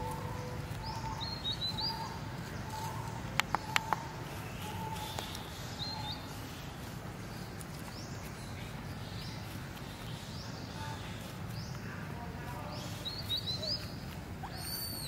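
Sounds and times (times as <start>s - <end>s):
birds calling: 0.0s - 15.0s
low steady background noise: 0.0s - 15.0s
sharp clicks: 3.3s - 4.1s.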